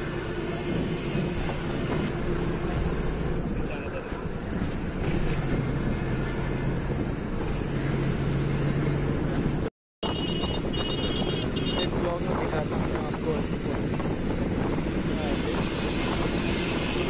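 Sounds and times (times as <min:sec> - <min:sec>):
bus engine hum: 0:00.0 - 0:10.8, 0:11.4 - 0:17.0
tyre and wind noise: 0:04.4 - 0:17.0.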